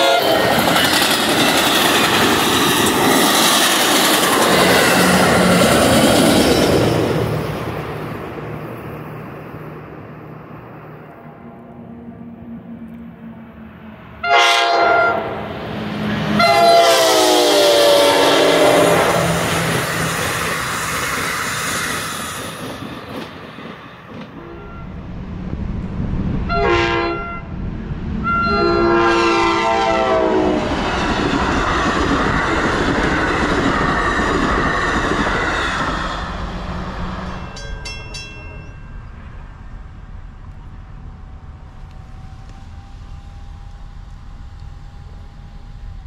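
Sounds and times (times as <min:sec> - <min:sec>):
train horn: 0:00.0 - 0:00.9, 0:14.2 - 0:19.8, 0:24.3 - 0:25.2, 0:26.4 - 0:27.5, 0:28.2 - 0:30.8
train rolling past: 0:00.0 - 0:46.0.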